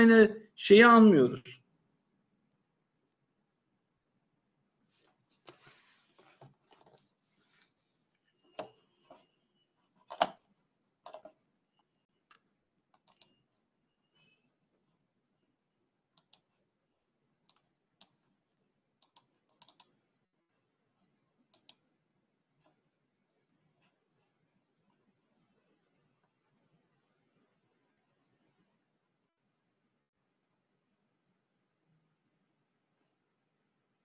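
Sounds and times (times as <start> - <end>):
computer clicks and knocks: 10.0 - 10.4.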